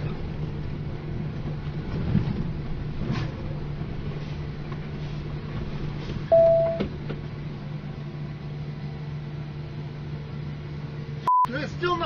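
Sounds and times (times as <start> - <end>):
road rumble: 0.0 - 12.0
truck engine hum: 0.0 - 12.0
loud single-pitched beep: 6.3 - 6.8, 11.2 - 11.5.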